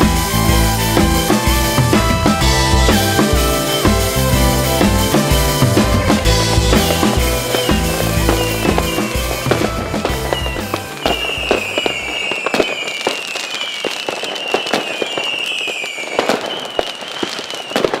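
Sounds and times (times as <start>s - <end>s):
background music: 0.0s - 12.2s
fireworks whistles sliding downward: 0.0s - 18.0s
fireworks crackling pops: 5.8s - 18.0s.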